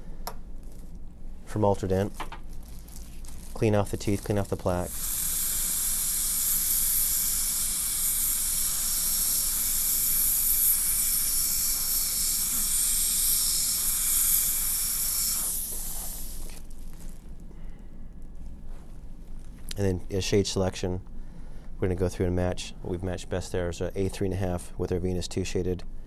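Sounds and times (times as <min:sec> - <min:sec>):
dental handpiece hissing: 0:03.6 - 0:16.7.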